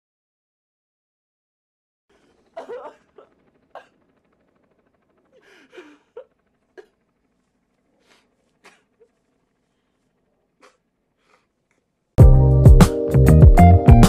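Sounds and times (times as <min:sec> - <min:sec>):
man sobbing: 0:02.2 - 0:04.0, 0:05.4 - 0:07.0.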